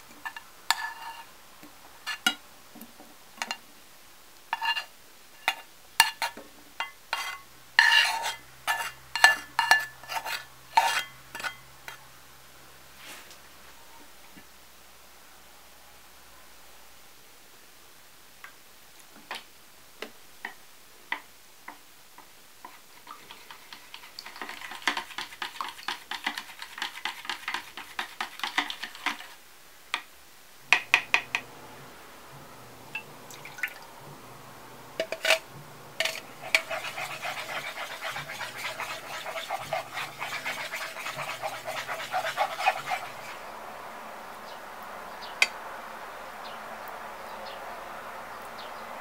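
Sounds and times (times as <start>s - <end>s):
spatula scraping frying pan: 0.0s - 1.3s, 2.0s - 2.4s, 4.5s - 12.0s, 22.7s - 29.4s, 35.0s - 43.5s
chopsticks beating eggs in glass bowl: 23.1s - 29.4s, 35.0s - 43.4s
low steady hum: 30.3s - 49.0s.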